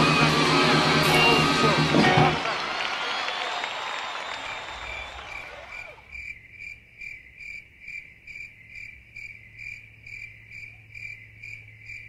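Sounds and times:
cricket chirping: 4.8s - 12.0s.

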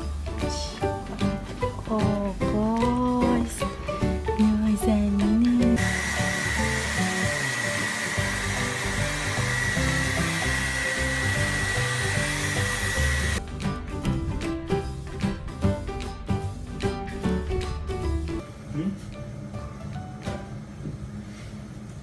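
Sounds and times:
hair dryer blowing: 5.8s - 13.4s.

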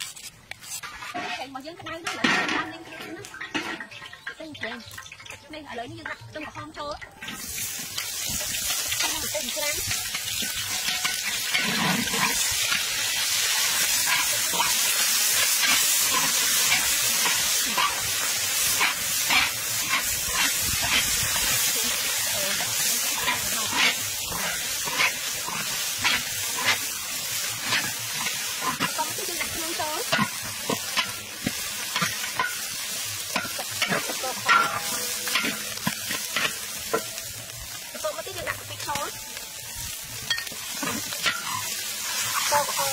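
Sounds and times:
food sizzling in hot oil: 0.0s - 42.9s
metal spatula scraping wok: 0.0s - 42.9s.

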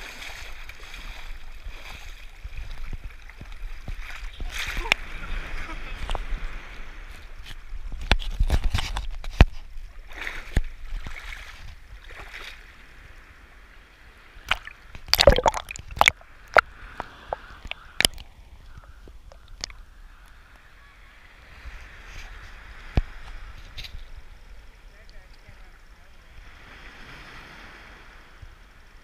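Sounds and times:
seawater sloshing and splashing: 0.0s - 5.7s, 8.4s - 12.7s, 14.4s - 18.3s
waves clicking on camera housing: 14.5s - 19.8s.

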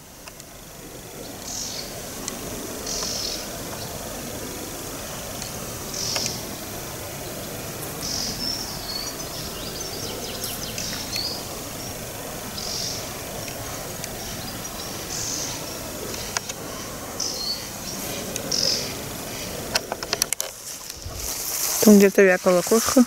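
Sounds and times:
outdoor background noise: 0.0s - 23.0s
small bird calling: 1.2s - 4.1s, 4.9s - 6.5s, 7.4s - 20.2s.

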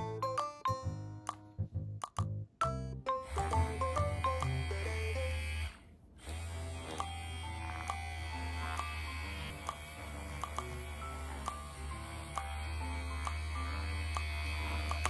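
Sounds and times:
handheld massager buzzing: 3.2s - 15.0s.

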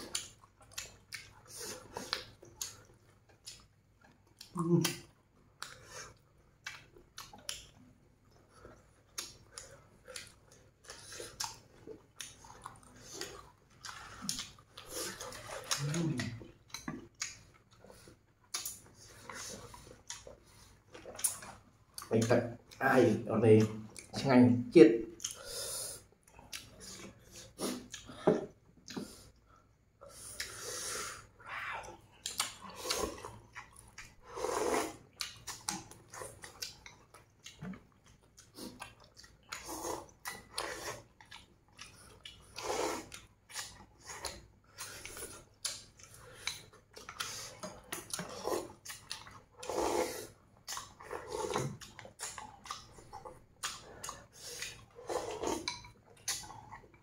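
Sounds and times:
people chewing: 0.0s - 24.3s, 25.1s - 57.0s
slurping noodles: 25.3s - 29.3s, 30.0s - 31.4s, 32.2s - 36.8s, 38.5s - 56.8s.

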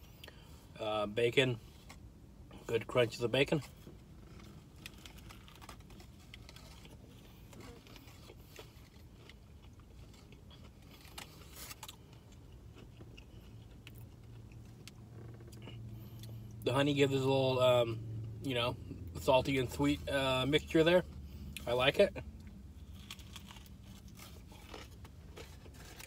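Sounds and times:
low steady hum: 0.0s - 26.0s
chewing crispy food: 3.7s - 16.6s, 21.4s - 26.0s.

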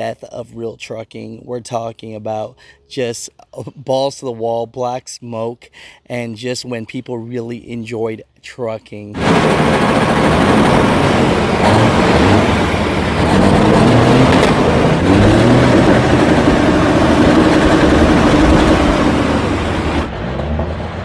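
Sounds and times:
lower truck engine: 9.2s - 21.0s
truck diesel engines revving: 9.2s - 21.0s.

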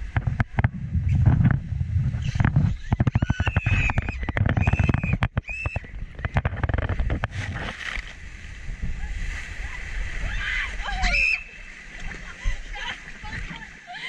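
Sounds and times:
low rumble: 0.0s - 3.0s
short high squeals: 10.6s - 11.7s.

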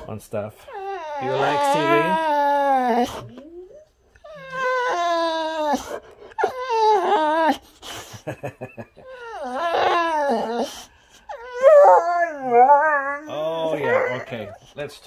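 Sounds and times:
dog breathing: 0.0s - 8.4s, 9.1s - 11.6s, 13.1s - 15.0s
dog whining howls: 0.6s - 7.6s, 9.0s - 14.6s.

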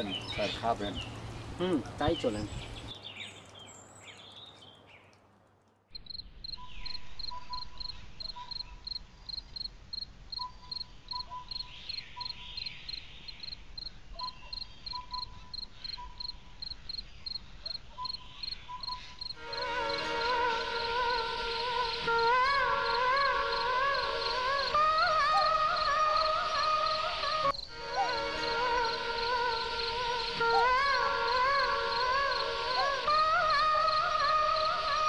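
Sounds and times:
crickets chirping: 6.0s - 35.0s
low repeated call: 18.8s - 35.0s.

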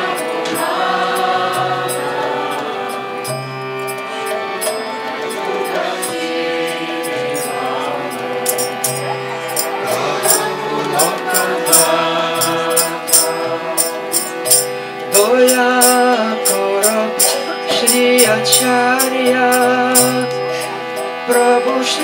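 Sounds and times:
harmonium chords: 0.0s - 22.0s
man singing: 5.1s - 22.0s
small hand cymbals clashing: 7.0s - 22.0s.

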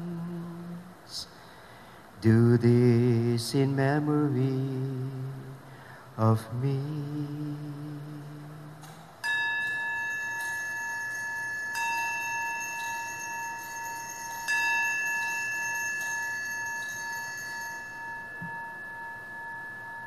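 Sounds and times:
altar bells ringing: 6.8s - 20.0s.

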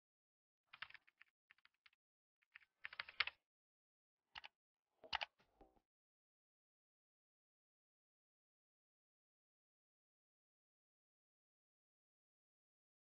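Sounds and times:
computer keyboard typing: 2.8s - 3.3s.

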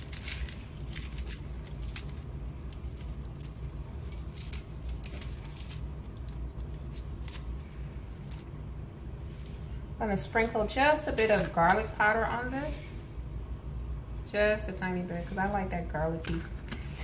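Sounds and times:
spinach leaves tearing: 0.0s - 9.6s
low hum: 0.0s - 17.0s.

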